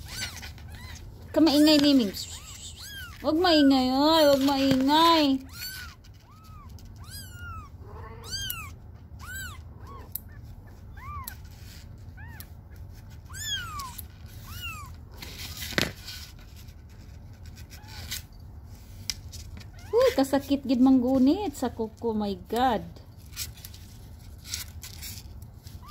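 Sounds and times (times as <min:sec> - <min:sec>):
kitten mewing: 0:01.6 - 0:04.4, 0:05.3 - 0:11.4, 0:12.1 - 0:15.2.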